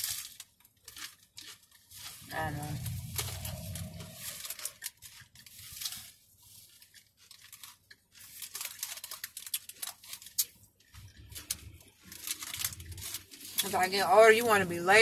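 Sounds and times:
paper wrapper crinkling: 0.0 - 15.0
chewing: 0.8 - 6.1.

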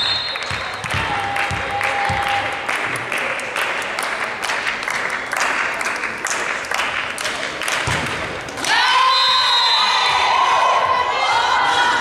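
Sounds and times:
spectators clapping in rhythm: 0.0 - 9.0.

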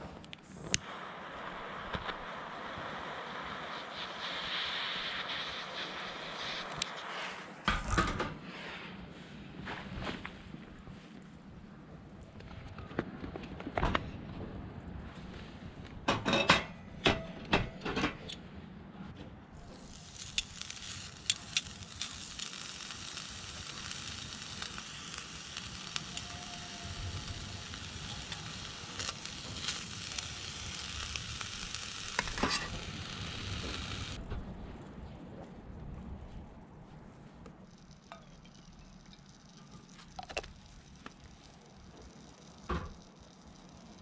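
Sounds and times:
meat sizzling in a skillet: 19.7 - 34.2.

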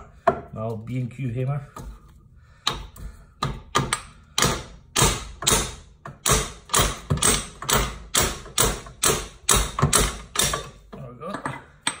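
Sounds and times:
hammer striking hammer: 2.6 - 10.7.

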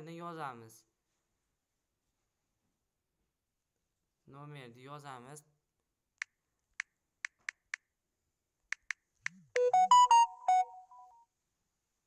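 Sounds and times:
electronic jingle: 9.6 - 11.2.

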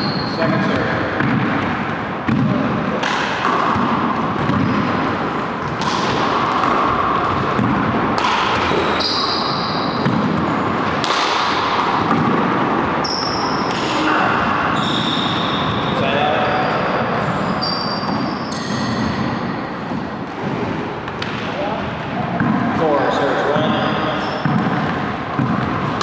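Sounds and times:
sneaker squeaks on floor: 0.0 - 0.8, 4.4 - 4.9, 8.7 - 10.6, 13.0 - 13.9, 14.7 - 19.6, 23.5 - 24.8.

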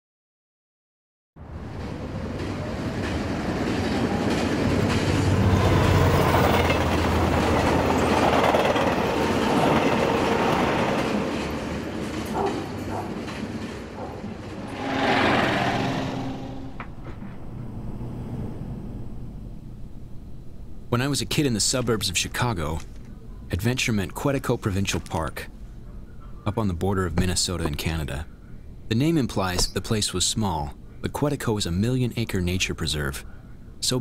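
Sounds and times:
train rattling on tracks: 1.5 - 17.6.

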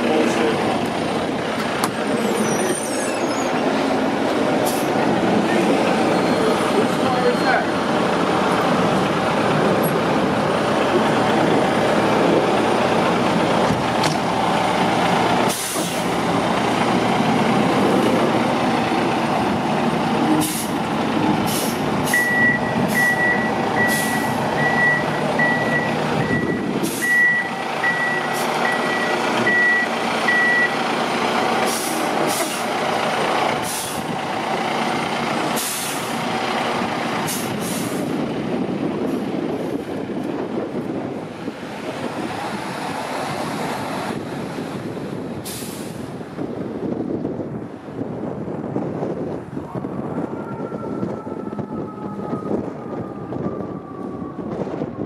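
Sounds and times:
diesel engine running: 0.0 - 55.0
reversing alarm beeping: 22.1 - 30.8
air brake hisses: 45.4 - 46.1.

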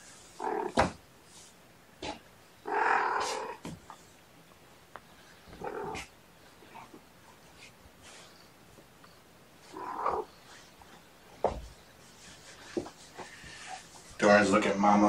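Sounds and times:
cat growling: 0.3 - 1.0, 2.0 - 3.7, 5.5 - 6.9, 9.6 - 10.3.

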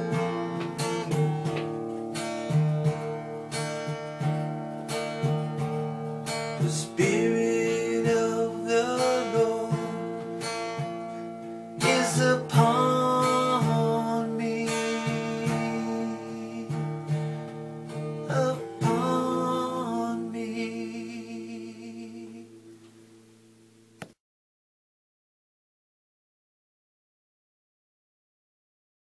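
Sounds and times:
acoustic guitar chords: 0.0 - 24.2
person singing long notes: 6.6 - 10.1
click: 24.0 - 24.2.

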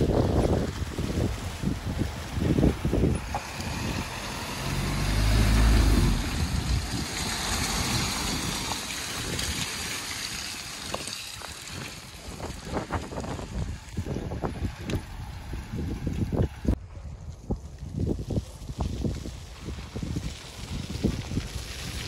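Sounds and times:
car driving through mud: 0.0 - 16.8.

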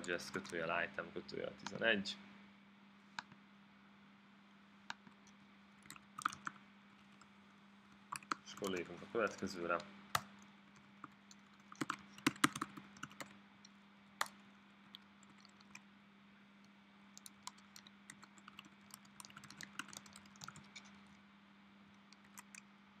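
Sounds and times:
steady low hum: 0.0 - 23.0
typing on computer keyboard: 5.2 - 6.6, 8.1 - 13.3, 14.2 - 15.8, 17.2 - 21.1, 22.1 - 22.6.

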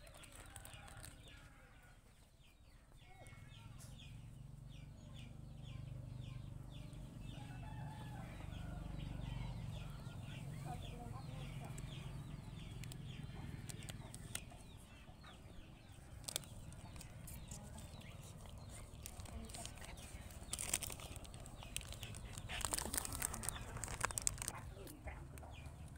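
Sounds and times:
sharp crackles: 0.0 - 1.3, 16.2 - 25.9
chickens peeping and clucking: 0.0 - 25.9.

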